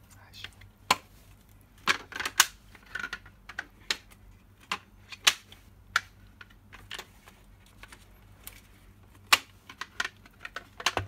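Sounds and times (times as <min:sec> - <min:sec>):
hard plastic clicks and knocks: 0:09.3 - 0:11.0.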